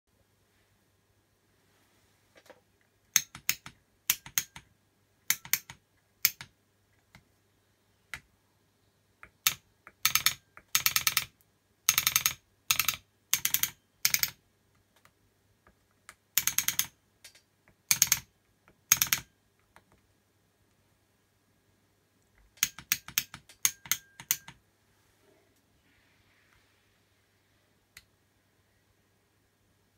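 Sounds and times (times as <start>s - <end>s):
solenoid valves clicking: 3.1s - 6.5s, 22.4s - 24.6s.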